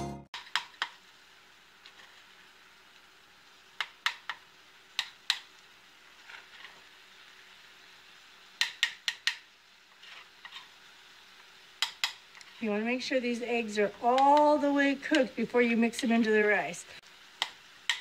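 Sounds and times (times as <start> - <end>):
metal spoon clinking on skillet: 11.8 - 12.4.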